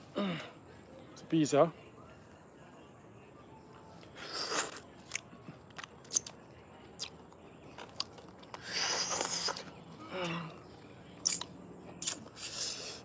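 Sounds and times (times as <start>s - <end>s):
mouth clicks and smacks: 4.3s - 6.4s, 7.0s - 7.4s, 11.2s - 12.4s.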